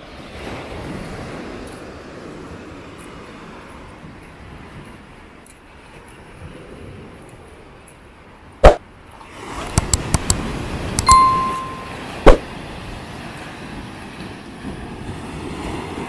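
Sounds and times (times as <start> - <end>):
sea wind: 0.0 - 16.0
short bell ding: 11.0 - 12.0.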